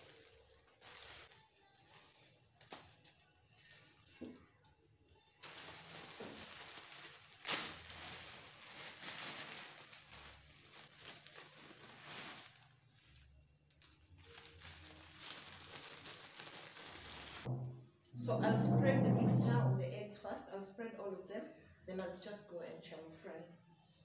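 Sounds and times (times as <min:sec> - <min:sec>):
plastic bag crinkling: 0:00.0 - 0:17.6.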